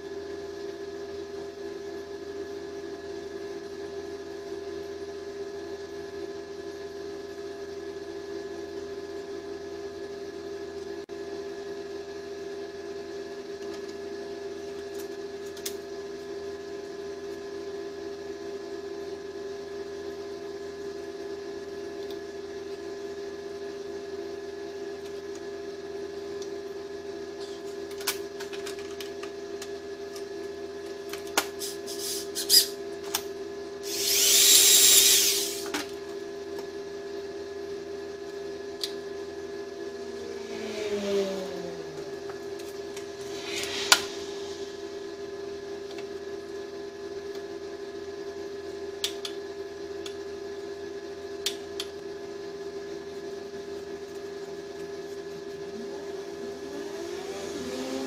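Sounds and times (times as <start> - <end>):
power tool burst: 33.8 - 35.7
machine hum: 39.2 - 46.5.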